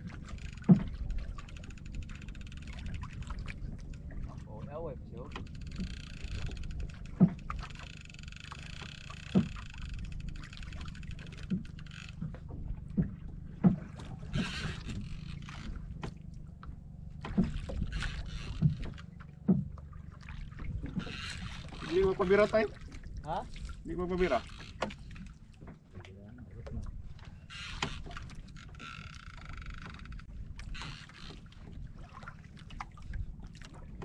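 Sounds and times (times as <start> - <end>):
water lapping against boat hull: 0.0 - 34.0
wind rumble on microphone: 20.5 - 25.4.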